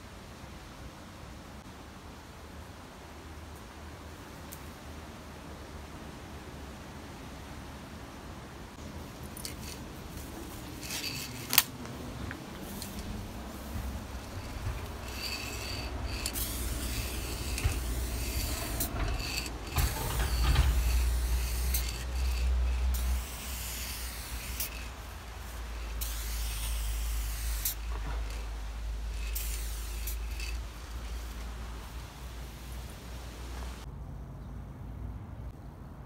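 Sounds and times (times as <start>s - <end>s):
spray paint can hissing: 9.4s - 11.7s, 12.6s - 31.7s.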